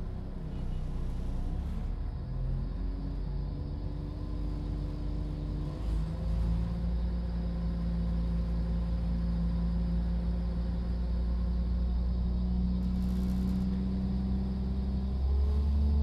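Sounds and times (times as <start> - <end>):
train wheels rumbling on track: 12.8 - 14.3.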